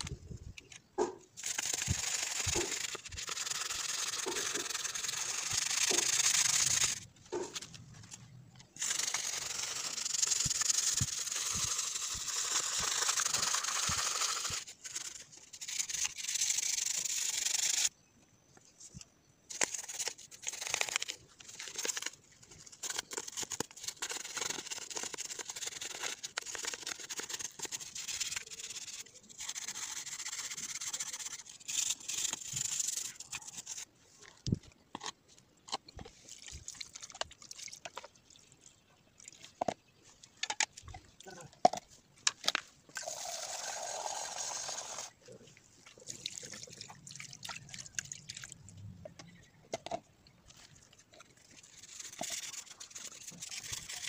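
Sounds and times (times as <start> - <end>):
toothbrush scrubbing plastic: 1.4 - 7.6, 8.8 - 17.9, 19.6 - 33.9, 50.5 - 54.0.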